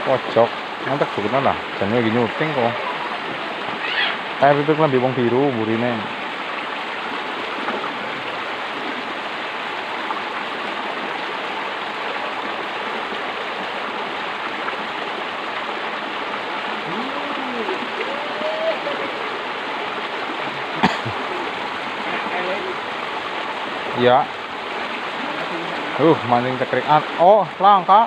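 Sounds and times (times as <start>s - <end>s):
water rushing along ditch: 0.0s - 28.0s
faint voices: 16.8s - 19.3s.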